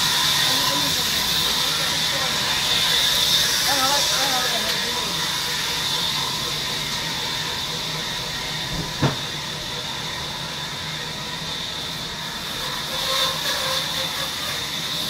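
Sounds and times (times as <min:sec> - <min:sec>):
sawmill machinery noise: 0:00.0 - 0:15.0
sharp knock: 0:08.8 - 0:09.2.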